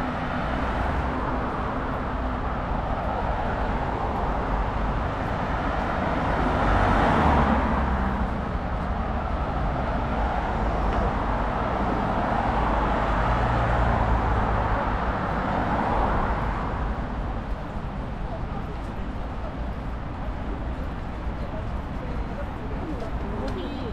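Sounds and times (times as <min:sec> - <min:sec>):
passing cars hum: 0:00.0 - 0:23.9.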